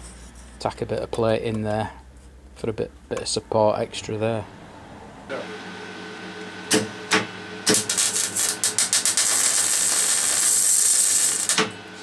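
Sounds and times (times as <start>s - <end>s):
welder arc crackling and hissing: 6.7s - 12.0s.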